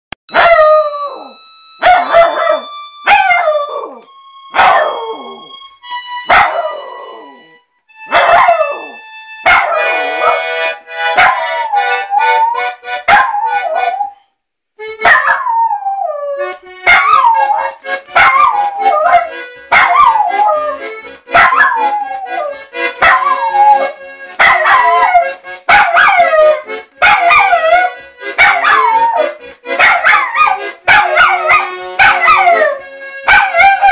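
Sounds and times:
instrument notes: 0.3s - 33.9s
puppy howling: 6.3s - 7.4s, 15.1s - 33.9s.

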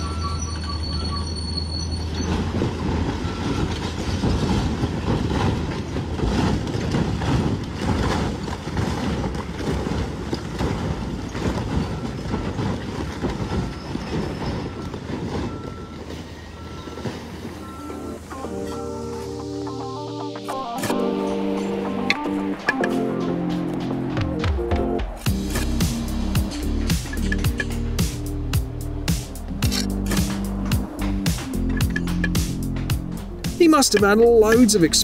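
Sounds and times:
concrete building collapsing: 0.0s - 18.2s.

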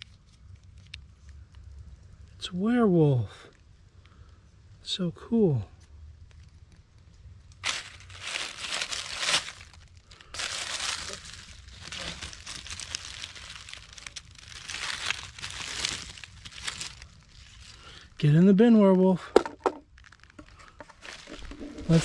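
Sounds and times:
dry leaves crackling and rustling: 7.5s - 18.2s, 19.4s - 22.0s.

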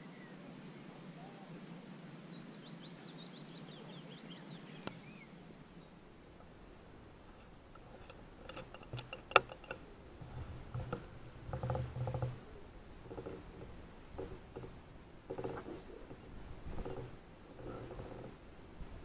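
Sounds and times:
dull thumps: 7.2s - 19.0s
rifle handling clicks and rustles: 7.3s - 12.4s.

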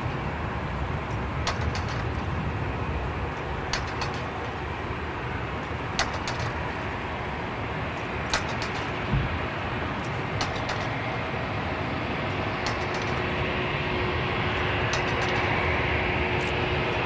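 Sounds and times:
distant jet aircraft rumble: 0.0s - 17.0s.

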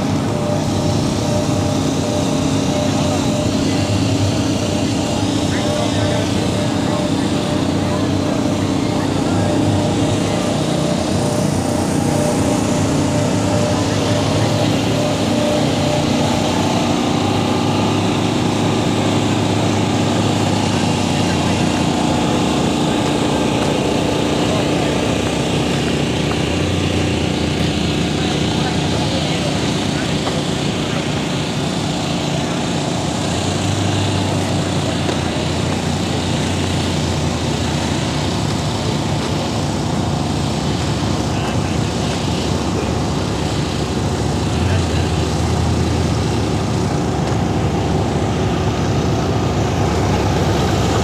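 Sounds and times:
outdoor noise: 0.0s - 51.0s
small engine droning: 0.0s - 51.0s.

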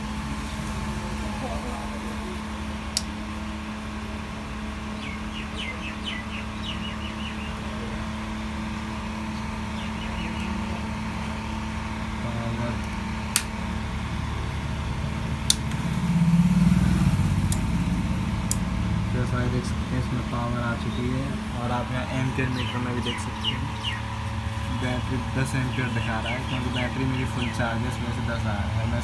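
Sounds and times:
inverter humming: 0.0s - 29.0s
bird chirps: 4.9s - 7.9s, 9.3s - 10.9s, 22.2s - 27.8s
sharp clicks: 12.8s - 13.5s.

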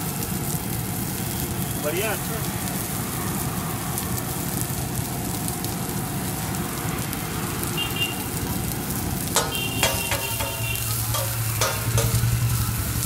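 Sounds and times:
vegetables sizzling on a griddle: 0.0s - 13.0s
spatula scraping on a griddle: 9.2s - 13.0s.

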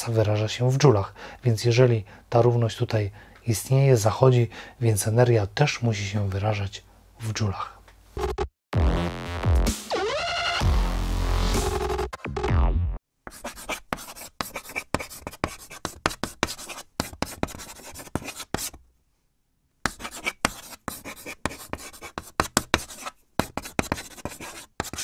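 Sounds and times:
pen scratching on paper: 13.3s - 18.8s, 19.9s - 25.0s.

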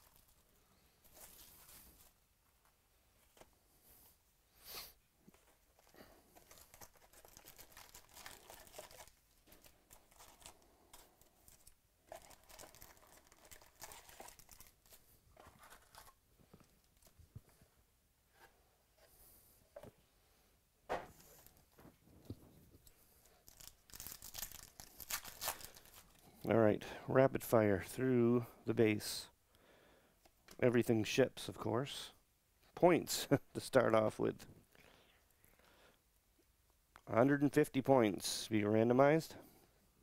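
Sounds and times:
foil card packs rustling: 5.4s - 17.2s, 23.2s - 26.2s.

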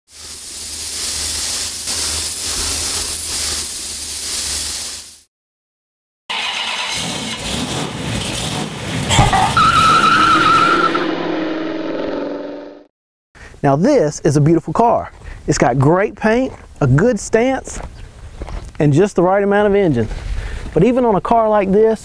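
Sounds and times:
spray gun hissing: 0.1s - 5.3s
tyre squeal: 9.1s - 11.3s
car engine revving: 9.1s - 12.8s.

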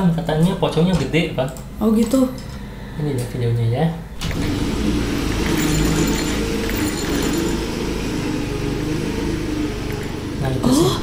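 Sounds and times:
motorcycle engine hum: 4.2s - 11.0s
road and wind noise: 4.2s - 11.0s.

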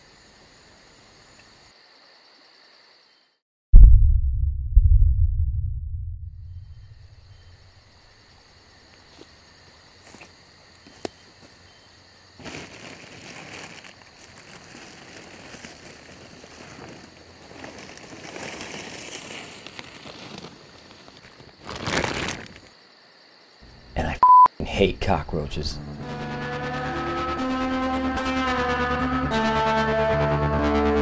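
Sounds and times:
insects chirring: 0.0s - 3.4s, 6.4s - 31.0s
deep boom: 3.7s - 7.6s
rustling: 12.4s - 22.7s
small clicks and snaps in leaves: 12.4s - 22.7s.

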